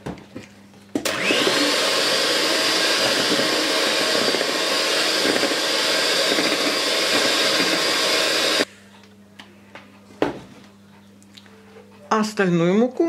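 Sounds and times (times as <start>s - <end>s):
electric hand mixer whirring: 1.0s - 8.7s.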